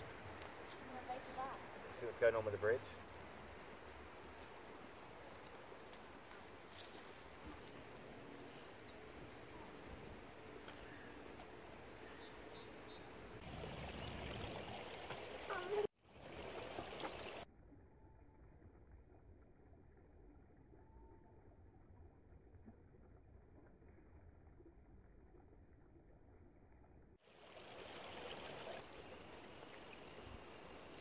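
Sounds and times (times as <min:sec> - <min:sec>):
steady outdoor hiss: 0:00.0 - 0:17.4, 0:27.3 - 0:31.0
small birds chirping: 0:03.7 - 0:13.3.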